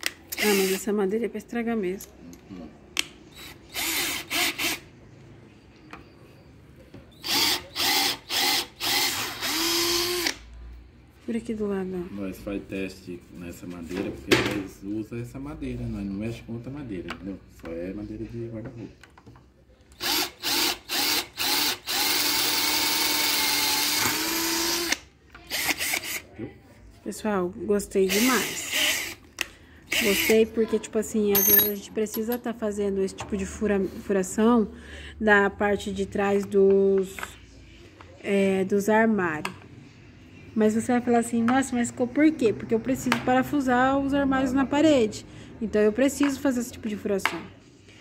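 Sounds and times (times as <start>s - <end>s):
cordless drill drilling into board: 0.4s - 0.8s, 3.3s - 4.8s, 7.2s - 10.4s, 20.0s - 26.2s, 28.1s - 29.2s, 29.9s - 30.4s.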